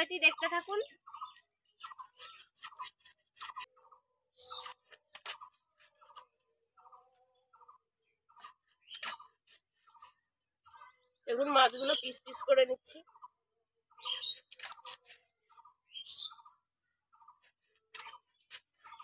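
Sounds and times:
fish scraping and knocking on blade: 1.8 - 3.7, 4.4 - 6.3, 8.3 - 10.1, 17.4 - 19.0.

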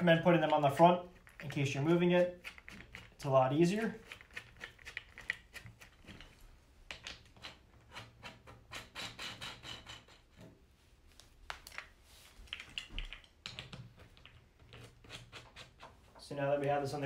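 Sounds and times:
caster wheels clicking and rubbing: 0.4 - 6.4.

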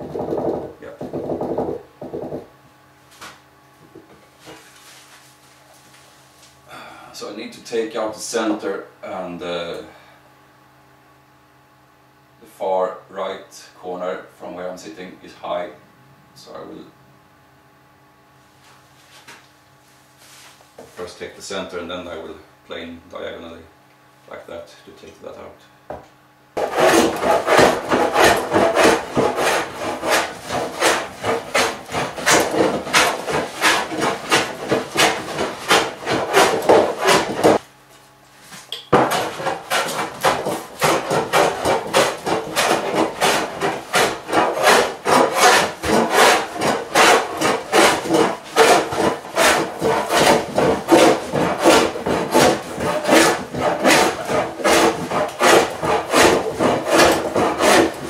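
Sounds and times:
hand plane shaving wood: 26.6 - 37.6, 39.0 - 58.0.

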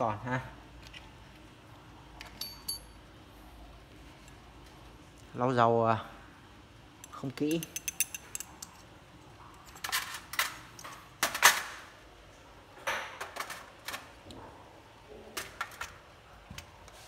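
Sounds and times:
metallic clicks and clinks: 2.2 - 3.0, 7.0 - 8.8.

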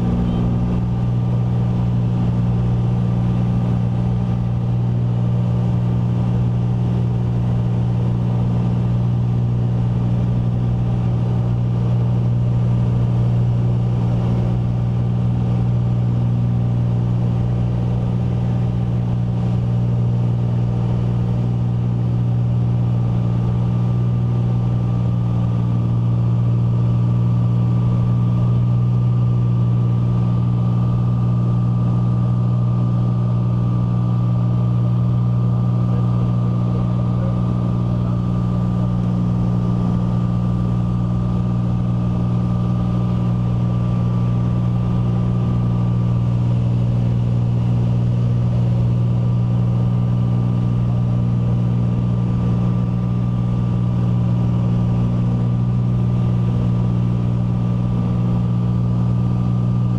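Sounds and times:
faint high tone: 0.0 - 0.9
propeller airplane engine drone: 0.0 - 59.9.

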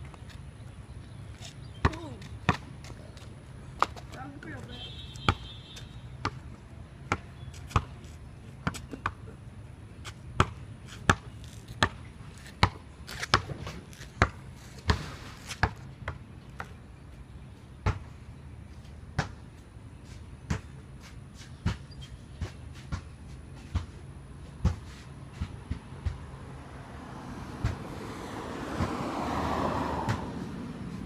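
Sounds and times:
basketball bouncing on concrete: 1.7 - 9.4, 10.0 - 16.8, 17.8 - 18.1, 19.2 - 19.4, 20.5 - 20.8, 21.6 - 24.0, 24.6 - 26.4, 27.6 - 27.9, 28.7 - 29.2, 30.0 - 30.4.

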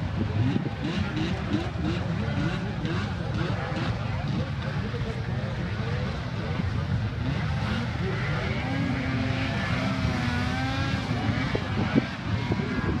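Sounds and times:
snowmobile engines racing: 0.0 - 13.0.

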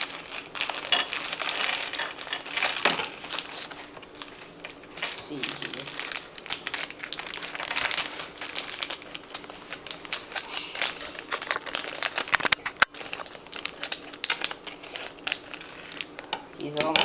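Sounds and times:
scissors cutting plastic: 0.0 - 3.8
plastic wrapper crinkling: 0.0 - 17.0.

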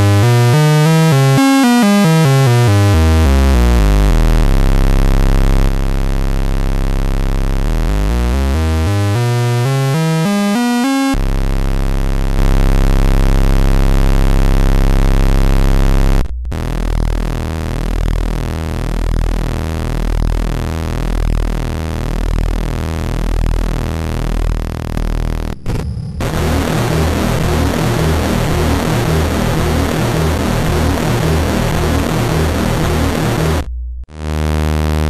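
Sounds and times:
buzzing synthesizer tones: 0.0 - 35.0
pulsing buzzing oscillator tone: 12.3 - 35.0.

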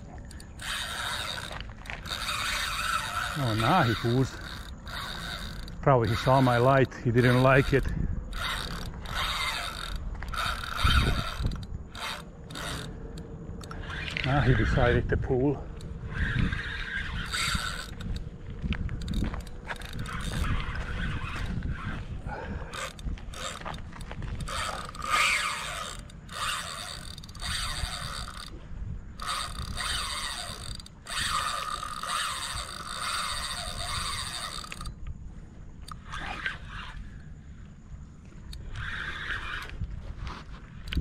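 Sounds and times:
fishing reel gears whirring: 0.0 - 35.2, 35.8 - 37.4, 38.2 - 41.0
reel drag clicking: 0.0 - 35.2, 35.8 - 37.3, 38.2 - 41.0.

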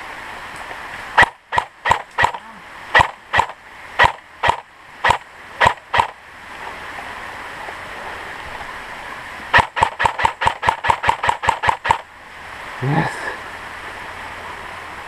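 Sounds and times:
airsoft rifle shots: 1.2 - 2.4, 3.0 - 6.2, 9.5 - 12.0.

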